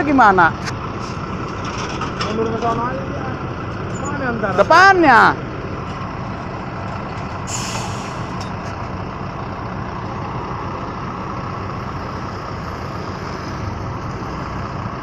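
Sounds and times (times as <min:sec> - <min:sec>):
diesel engine running: 0:00.0 - 0:15.0
short hiss: 0:07.5 - 0:08.4.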